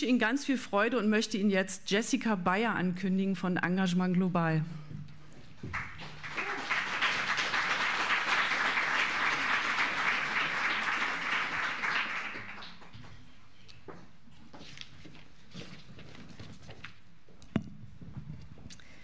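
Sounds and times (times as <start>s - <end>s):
audience applauding: 5.6s - 13.3s.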